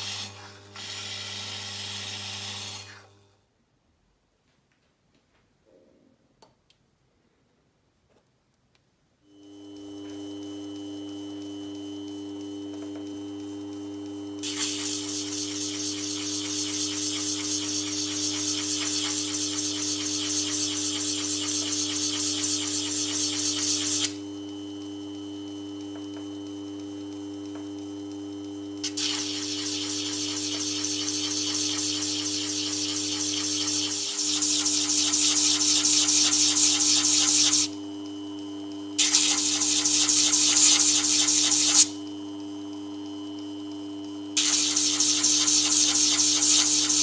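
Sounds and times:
workshop machine motor humming: 9.3 - 47.0
loud gritty hissing: 14.4 - 22.6, 28.9 - 37.7, 39.0 - 41.9, 44.4 - 47.0.

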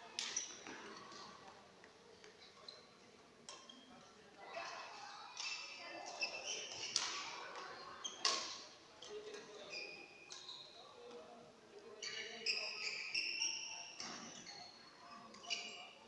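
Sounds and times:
shoe squeaks on court floor: 0.2 - 1.2, 2.4 - 3.9, 5.4 - 8.6, 9.3 - 11.0, 11.9 - 16.0.

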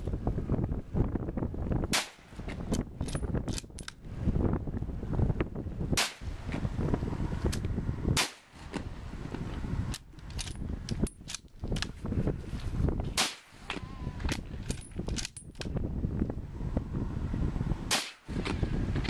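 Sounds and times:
rifle shot cracks: 1.9 - 2.3, 6.0 - 6.3, 8.2 - 8.5, 13.2 - 13.6, 17.9 - 18.3.

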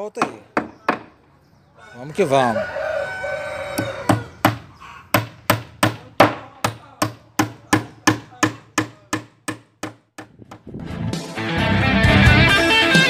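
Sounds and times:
hammer striking nails into wood: 0.2 - 1.2, 3.8 - 10.6.

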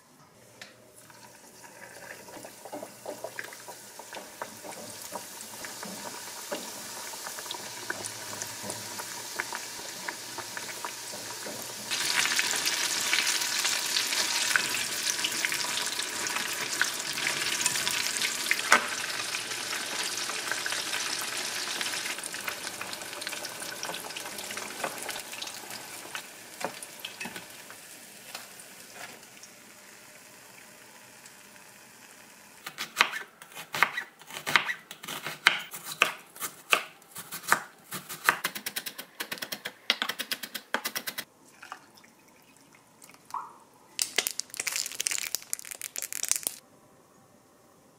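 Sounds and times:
fish deep-frying in oil: 1.7 - 27.7.

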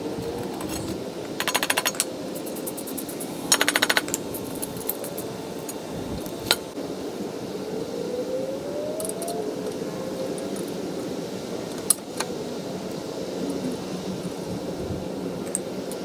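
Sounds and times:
rapid metallic clicking of hand tools: 0.4 - 5.3.

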